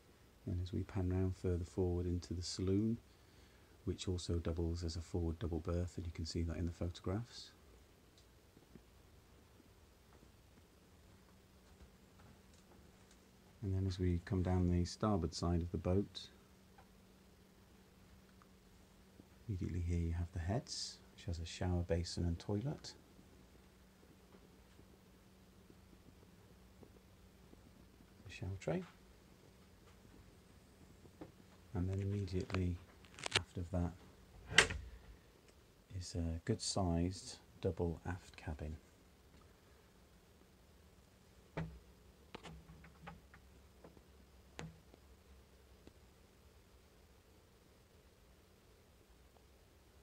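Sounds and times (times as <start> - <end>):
low steady hum: 0.0 - 50.0
faint clicks and knocks: 10.1 - 13.6, 41.5 - 45.1.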